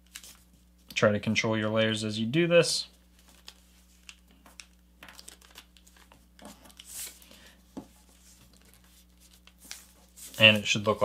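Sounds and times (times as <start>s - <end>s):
paper being folded and creased: 0.0s - 0.5s, 3.1s - 7.3s, 8.0s - 11.0s.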